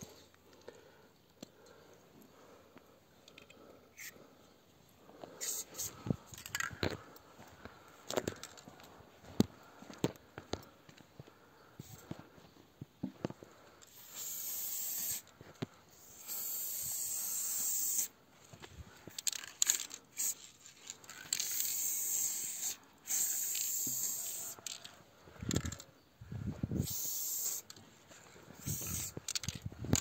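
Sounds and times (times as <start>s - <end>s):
spray paint can hissing: 5.4s - 5.9s, 13.9s - 15.3s, 15.9s - 18.2s, 19.7s - 20.6s, 21.2s - 24.8s, 26.8s - 27.8s, 28.5s - 30.0s.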